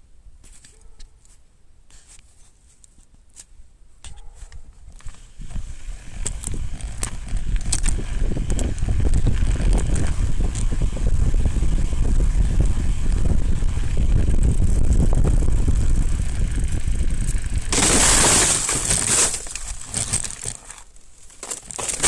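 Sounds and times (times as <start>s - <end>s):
bike clicks and crunches on snow: 0.4s - 22.0s
bike rolling rumble: 4.8s - 22.0s.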